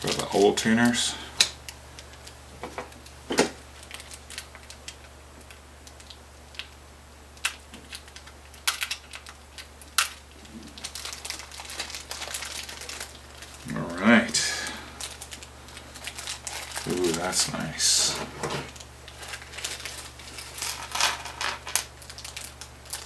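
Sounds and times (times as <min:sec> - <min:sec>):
plastic bag crinkling: 0:00.0 - 0:06.7, 0:07.4 - 0:23.0.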